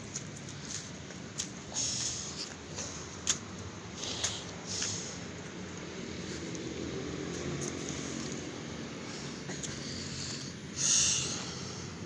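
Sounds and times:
footsteps on brick paving: 0:00.0 - 0:06.6.

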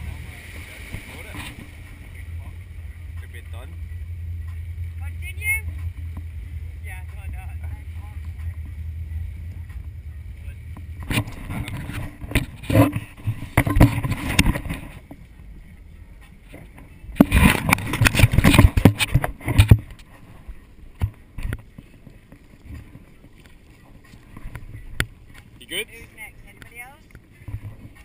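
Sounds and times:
water splashing: 0:00.0 - 0:28.0
wind buffeting microphone: 0:00.0 - 0:28.0
boat hull banging on waves: 0:10.6 - 0:15.2, 0:16.5 - 0:20.0.

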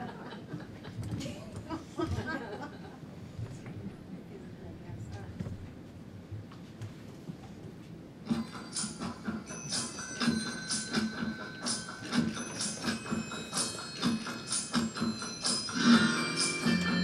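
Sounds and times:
music with beat and bells: 0:08.3 - 0:17.0.

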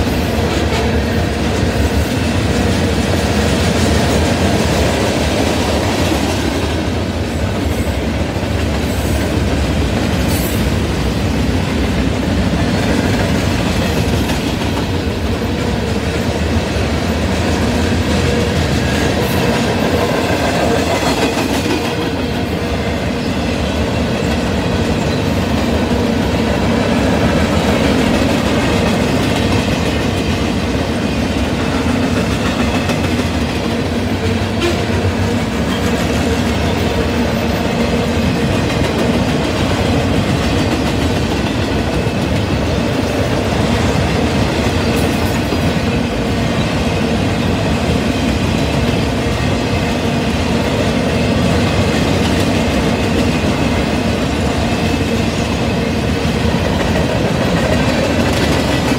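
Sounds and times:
freight train wheels rumbling on rails: 0:00.0 - 0:58.9.

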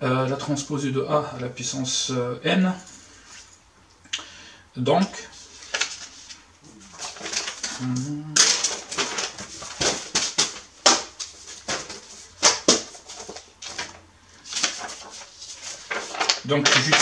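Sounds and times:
paper rustling: 0:05.3 - 0:17.0.

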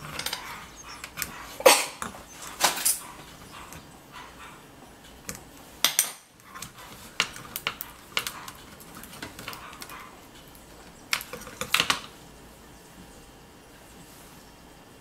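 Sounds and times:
metallic clicks and clattering: 0:00.0 - 0:03.9.

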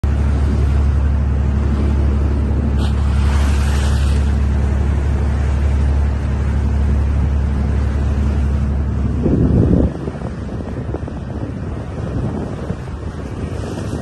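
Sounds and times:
boat engine droning: 0:00.0 - 0:14.0
water rushing along bow: 0:00.0 - 0:14.0.

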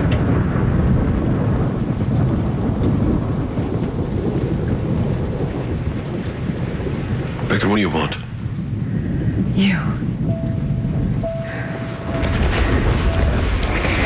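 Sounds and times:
low rumble of thunder: 0:00.0 - 0:14.0
rain falling: 0:00.0 - 0:14.0.

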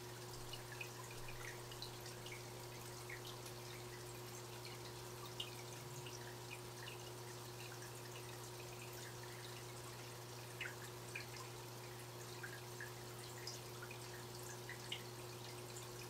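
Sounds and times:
aquarium filter humming: 0:00.0 - 0:16.0
water dripping and plinking: 0:10.5 - 0:11.5.

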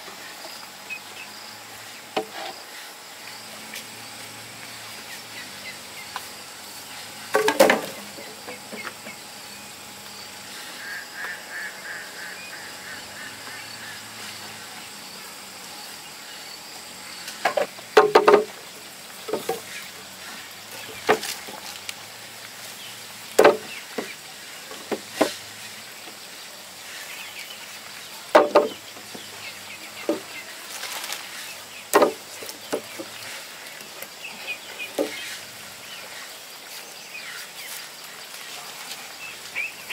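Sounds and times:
bamboo poles knocking: 0:07.3 - 0:09.0, 0:17.4 - 0:18.6, 0:19.2 - 0:19.7, 0:23.4 - 0:25.4, 0:28.3 - 0:29.3, 0:30.0 - 0:30.4, 0:31.9 - 0:33.2, 0:34.9 - 0:35.2.

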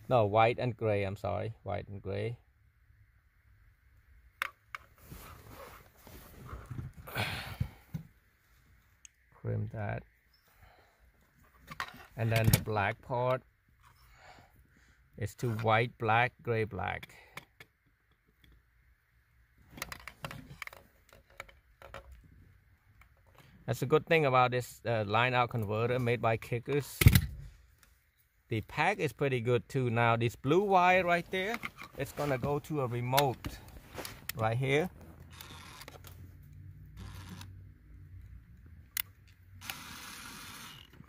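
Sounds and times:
small clicks and rustles: 0:19.6 - 0:23.6, 0:31.3 - 0:37.6.

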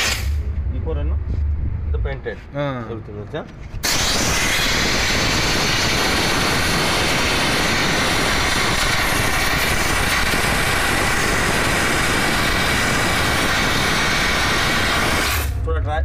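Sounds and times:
steam jet hissing: 0:00.0 - 0:00.4, 0:03.8 - 0:15.6.

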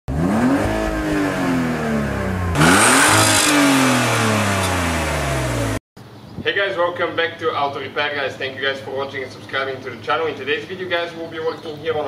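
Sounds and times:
car engine revving: 0:00.1 - 0:05.8.

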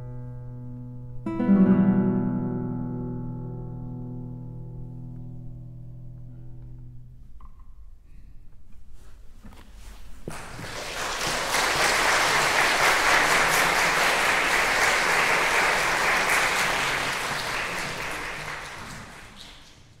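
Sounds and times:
audience applauding: 0:10.3 - 0:20.0.

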